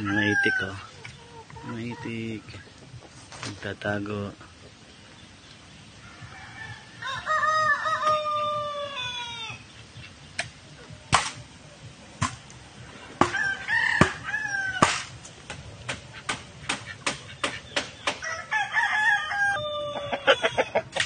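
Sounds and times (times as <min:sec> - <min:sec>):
rooster crowing: 0:00.0 - 0:00.9, 0:06.0 - 0:09.6, 0:13.2 - 0:15.1, 0:18.1 - 0:20.8
sharp knocks: 0:14.8 - 0:18.2.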